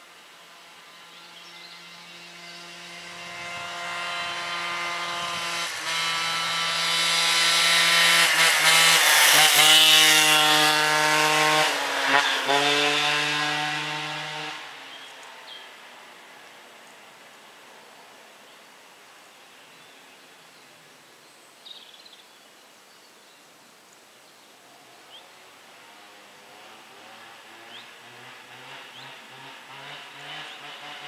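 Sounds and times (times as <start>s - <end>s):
moped engine passing by: 0.6s - 15.1s, 25.2s - 31.0s.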